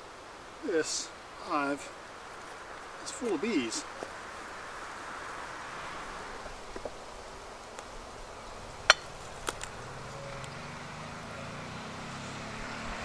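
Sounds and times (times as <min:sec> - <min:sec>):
honeybees buzzing: 0:00.0 - 0:13.0
hive tool cracking wooden frames: 0:08.8 - 0:09.8.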